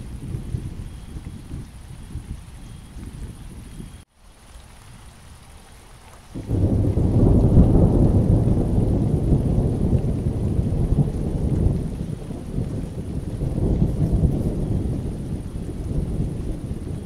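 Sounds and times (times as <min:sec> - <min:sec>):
deep thunder rumbling: 0:00.0 - 0:04.0, 0:06.4 - 0:17.0
rain falling: 0:00.0 - 0:17.0.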